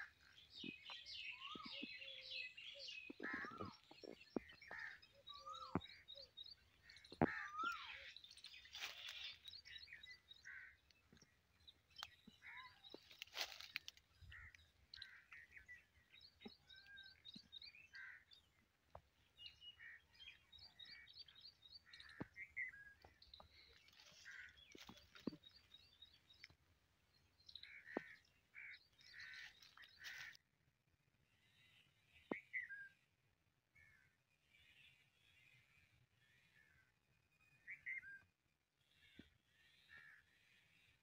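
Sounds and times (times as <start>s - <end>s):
small birds chirping: 0.0s - 30.4s.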